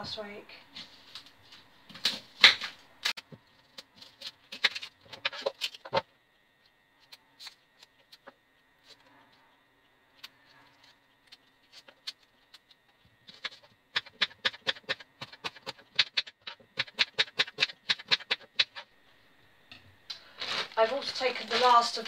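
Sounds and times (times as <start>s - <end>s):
knife chopping on wooden board: 13.4s - 18.8s.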